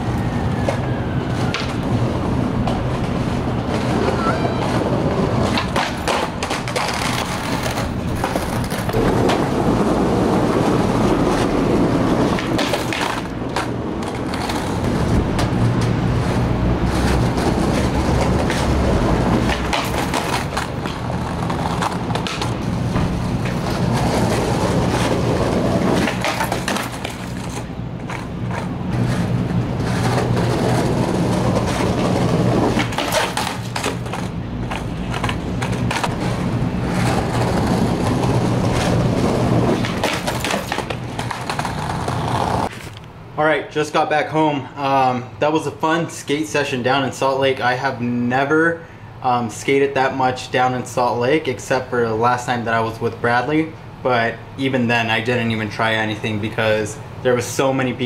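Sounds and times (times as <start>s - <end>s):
skateboard wheels rolling on stone: 0.0s - 42.9s
skateboard hitting the ground: 1.4s - 1.9s, 3.7s - 15.9s, 16.9s - 42.7s.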